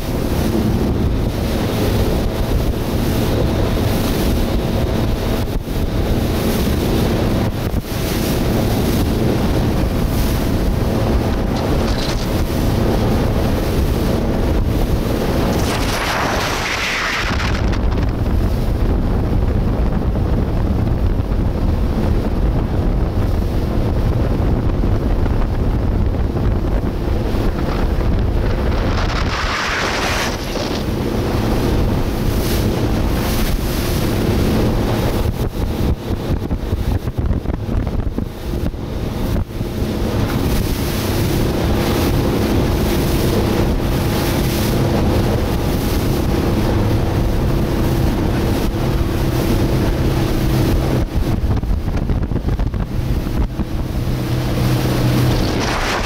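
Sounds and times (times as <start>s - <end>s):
rushing water: 0.0s - 19.9s, 26.2s - 56.0s
motorboat engine drone: 0.0s - 56.0s
wind buffeting microphone: 0.0s - 56.0s.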